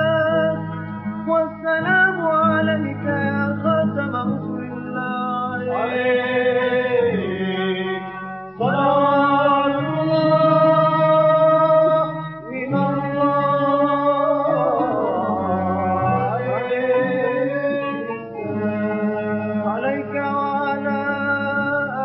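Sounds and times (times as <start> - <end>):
man singing a slow chant: 1.3 - 22.0.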